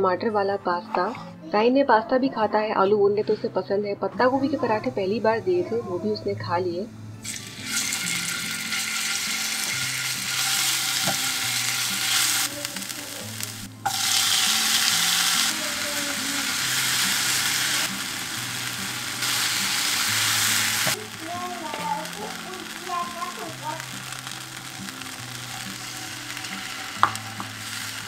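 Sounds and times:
tomatoes sizzling in hot oil: 7.2s - 28.0s.

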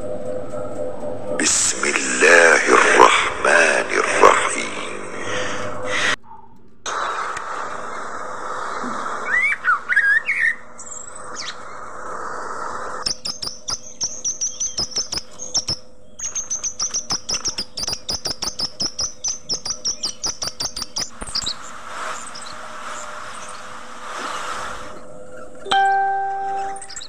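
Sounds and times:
budgerigars chirping: 13.0s - 25.6s, 26.6s - 27.0s.

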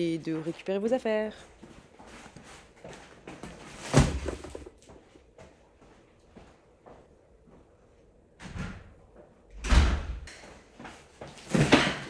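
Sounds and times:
cardboard boxes thumping down: 3.7s - 4.8s.

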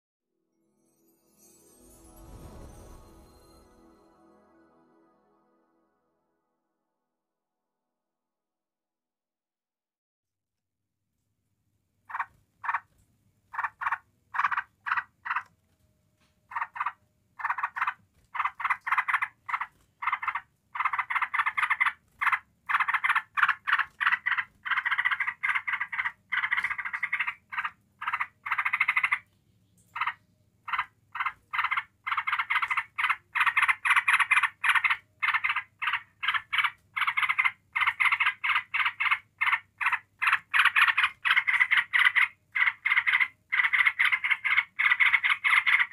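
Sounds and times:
bulbul chattering song: 13.5s - 15.5s, 16.5s - 29.3s, 29.9s - 45.9s.

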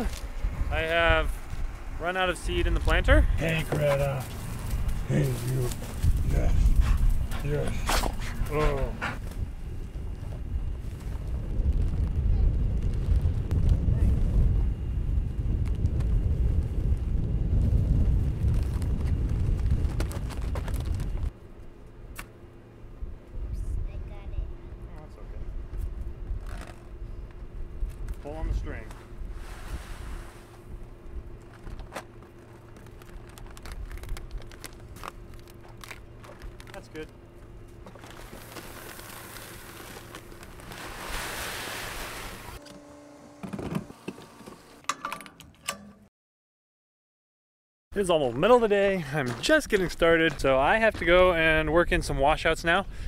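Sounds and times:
wind rumbling on microphone: 0.0s - 21.4s
faint hum: 0.0s - 44.8s
seed bags rustling: 32.4s - 37.1s, 37.8s - 42.6s
seed pouring from a bag: 37.9s - 42.6s.

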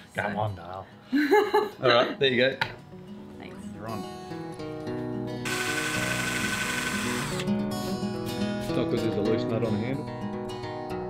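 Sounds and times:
guitar background music: 0.0s - 11.0s
cordless drill whining: 5.4s - 7.5s.

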